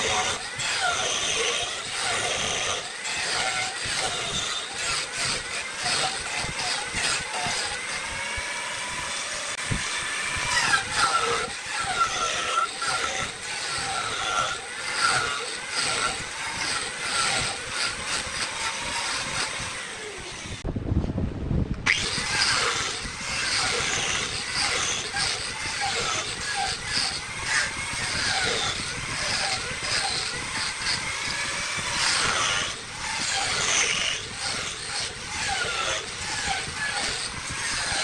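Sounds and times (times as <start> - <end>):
angle grinder grinding wood: 0.0 - 20.7, 21.8 - 38.0
low rumble: 20.3 - 22.3.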